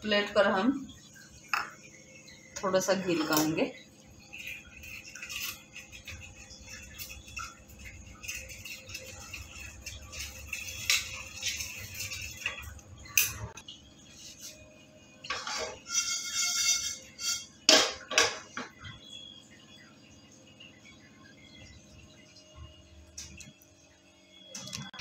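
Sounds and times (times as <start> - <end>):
spoon scraping a steel plate: 3.0 - 3.6, 4.3 - 13.6, 15.3 - 17.6.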